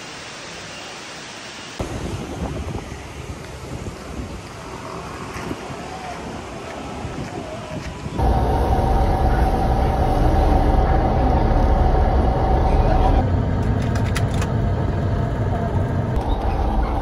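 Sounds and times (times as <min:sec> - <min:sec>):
bus engine rumble: 0:03.1 - 0:17.0
steady whine: 0:08.2 - 0:17.0.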